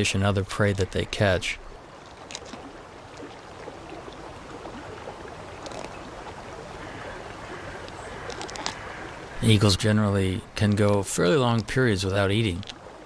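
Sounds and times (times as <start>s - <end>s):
river water over gravel: 0.0s - 13.0s
faint clicks: 7.7s - 9.0s, 12.4s - 12.8s.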